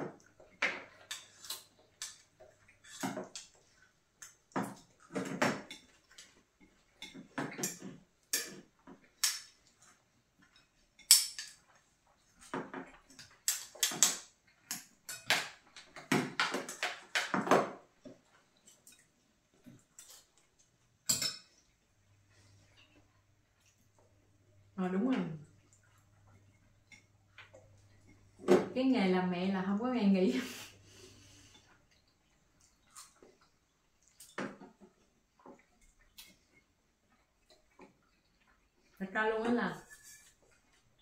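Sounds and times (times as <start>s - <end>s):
utensils clinking against glass bowls: 21.1s - 21.5s.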